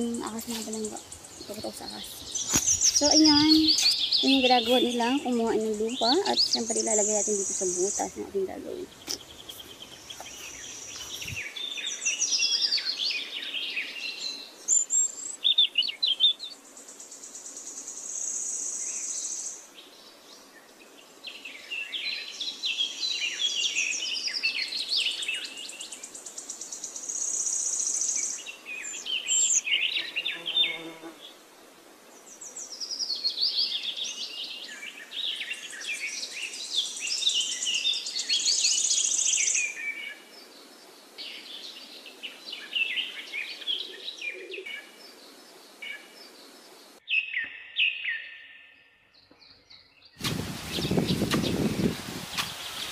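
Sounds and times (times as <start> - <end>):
high insect drone: 0.0 - 15.3
birds singing and chirping: 0.0 - 31.2, 32.2 - 52.9.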